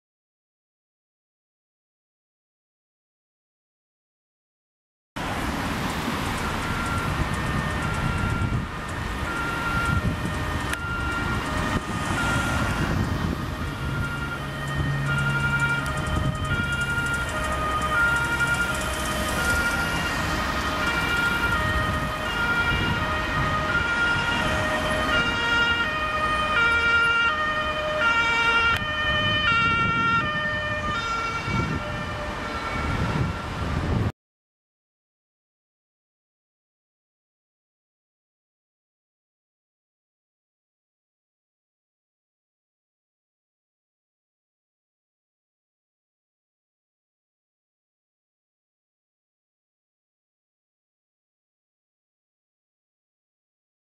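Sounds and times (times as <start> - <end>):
engine and traffic rumble: 5.2 - 34.1
two-tone fire engine siren: 5.7 - 34.1.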